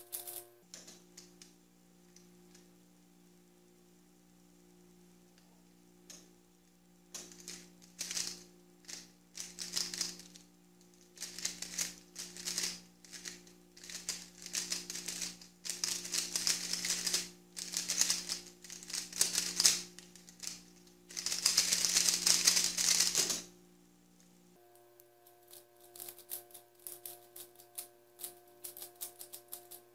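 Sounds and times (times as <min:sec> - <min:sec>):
plastic puzzle cube clicking: 0:07.2 - 0:10.3, 0:11.2 - 0:23.4.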